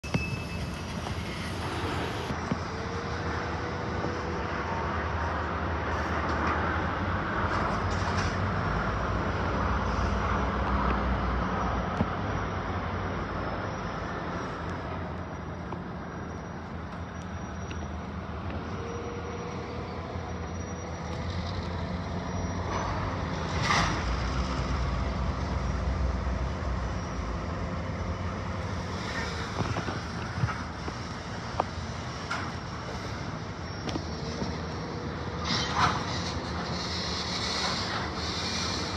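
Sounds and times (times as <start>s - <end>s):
diesel locomotives idling: 12.6s - 38.9s.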